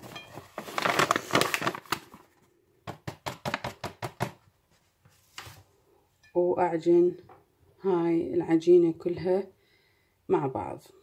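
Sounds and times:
paper bag rustling: 0:00.0 - 0:02.5.

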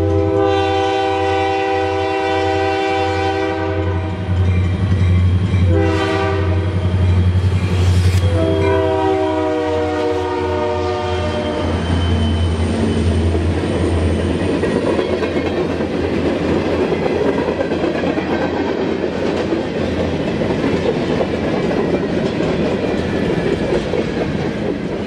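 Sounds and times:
freight train wheels rumbling: 0:00.0 - 0:25.0
locomotive engine drone: 0:04.1 - 0:09.2.

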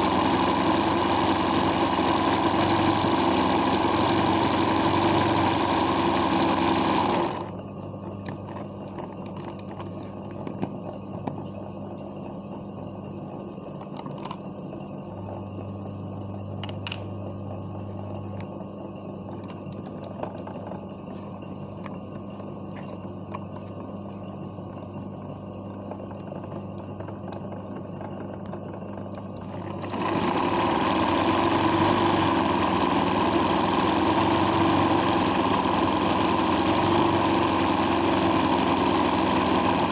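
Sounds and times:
sewing machine stitching: 0:00.0 - 0:07.6, 0:28.8 - 0:39.9
low hum: 0:07.3 - 0:29.9.

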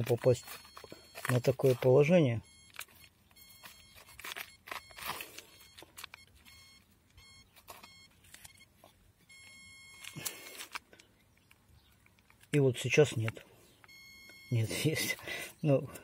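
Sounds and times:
continuity tester beeping: 0:00.0 - 0:10.6, 0:13.8 - 0:15.2.

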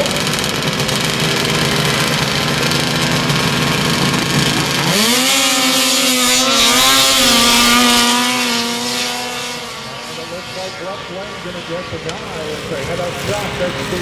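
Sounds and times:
snowmobile engines revving: 0:00.0 - 0:14.0.

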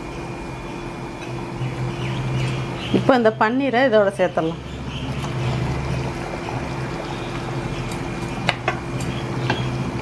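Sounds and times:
steady low hum: 0:00.0 - 0:10.0
gravy bubbling in a pan: 0:04.8 - 0:10.0.

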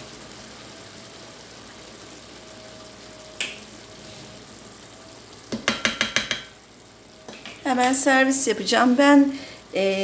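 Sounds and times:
food hissing in pot: 0:00.0 - 0:05.5
spatula knocking against pot: 0:05.5 - 0:06.6.

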